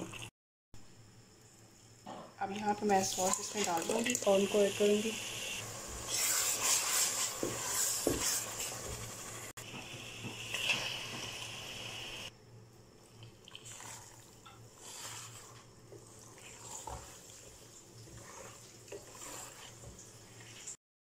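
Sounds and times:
spatula stirring pasta in sauce: 5.8s - 9.3s, 13.6s - 20.8s.

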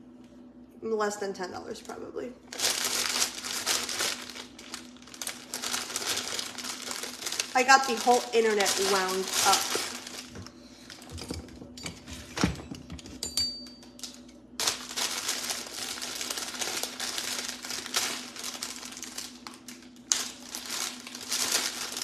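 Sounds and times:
plastic bag crinkling: 2.5s - 11.8s, 13.9s - 22.0s.

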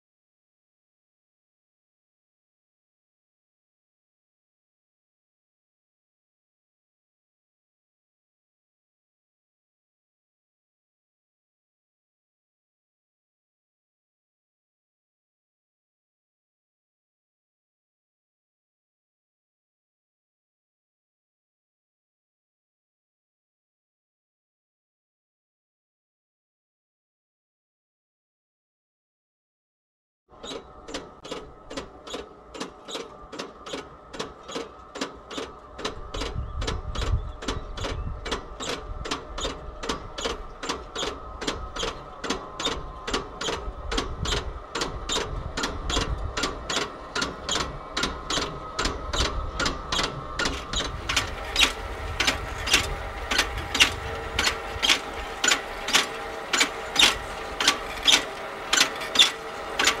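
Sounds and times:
electric drive hum: 30.3s - 60.0s
regular mechanical click: 30.4s - 60.0s.

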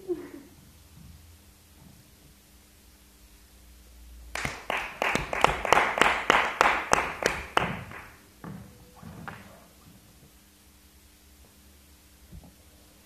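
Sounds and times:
hand clapping: 4.3s - 8.2s.

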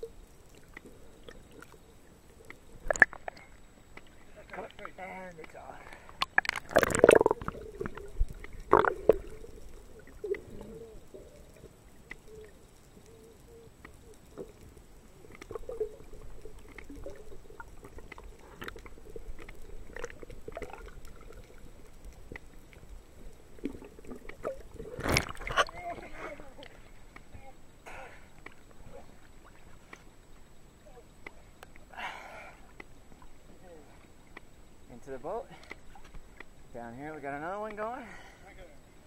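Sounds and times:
underwater clicks and knocks: 2.4s - 4.2s, 4.8s - 10.7s, 15.3s - 22.9s, 23.6s - 27.4s
underwater murmur: 5.9s - 29.7s.

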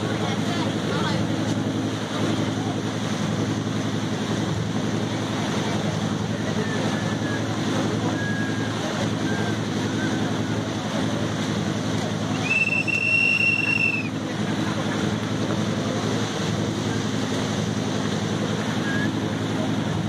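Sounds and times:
boat engine droning: 0.0s - 20.0s
rushing water: 0.0s - 20.0s.

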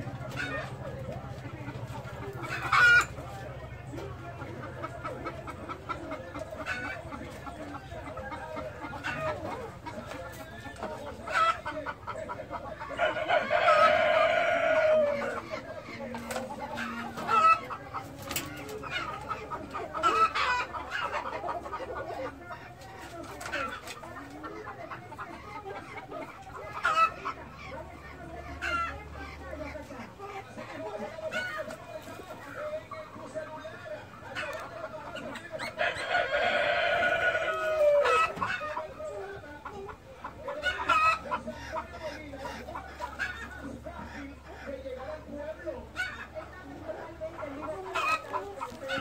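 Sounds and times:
pheasants clucking: 0.0s - 49.0s.

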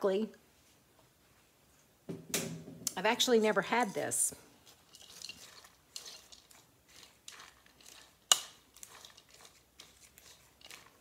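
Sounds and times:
spoon stirring slaw in bowl: 3.0s - 11.0s.

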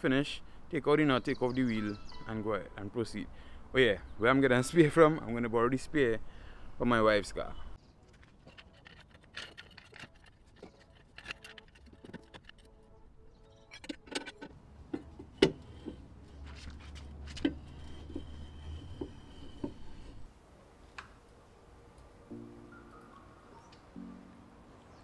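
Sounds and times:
scissor jack metal clicks and clinks: 8.6s - 12.7s
low hum: 10.1s - 20.5s.

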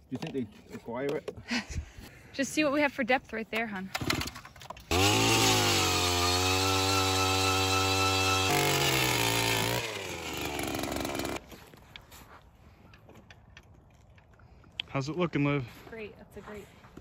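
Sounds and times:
ice auger engine drilling: 4.9s - 11.4s.

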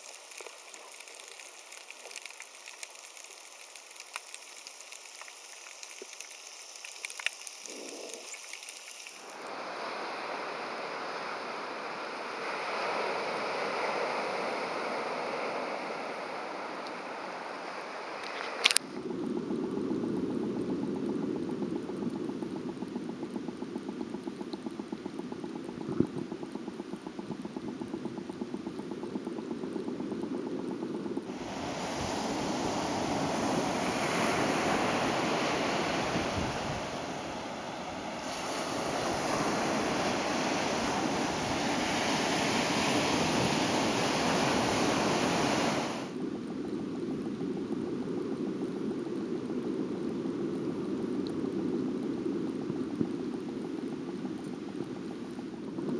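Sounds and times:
fine rapid ticking: 21.2s - 31.3s.

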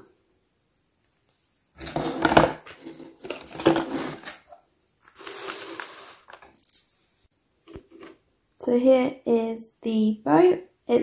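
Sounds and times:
plastic and paper rustling: 1.8s - 6.9s.

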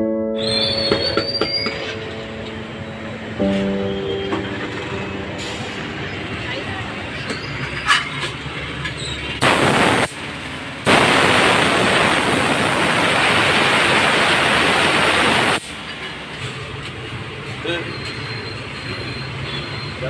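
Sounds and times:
compressed air blasts: 9.4s - 15.8s.

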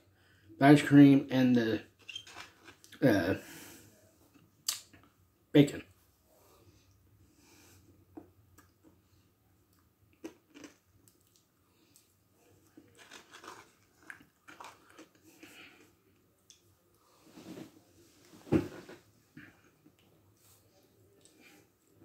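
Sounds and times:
mouth eating sounds: 4.6s - 4.9s
lip smacks: 4.6s - 5.1s.

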